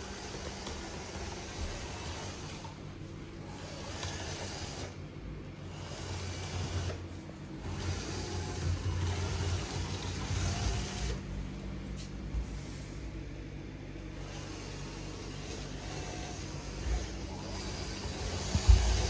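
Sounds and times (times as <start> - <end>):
robot vacuum motor whirr: 0.0 - 2.8, 3.5 - 5.0, 5.6 - 11.2, 14.1 - 19.0.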